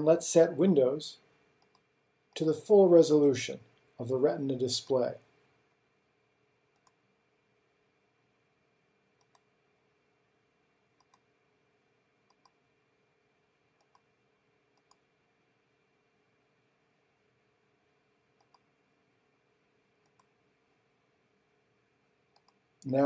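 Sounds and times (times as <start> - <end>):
computer mouse clicks: 1.6 - 1.9, 6.7 - 7.0, 9.2 - 9.5, 11.0 - 11.3, 12.3 - 12.6, 13.8 - 14.1, 14.7 - 15.0, 18.4 - 18.7, 19.9 - 20.4, 22.3 - 22.6.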